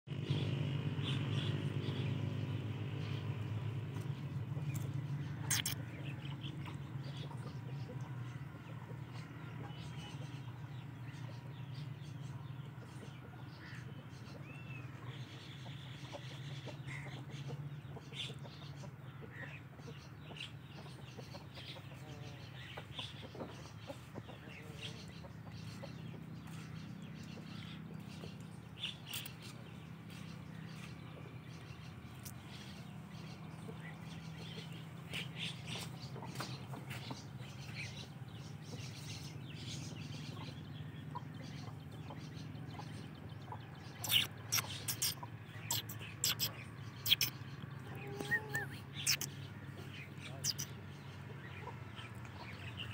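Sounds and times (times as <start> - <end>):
short high chirps and clicks: 5.5 - 5.8, 44.0 - 46.5, 47.1 - 47.3.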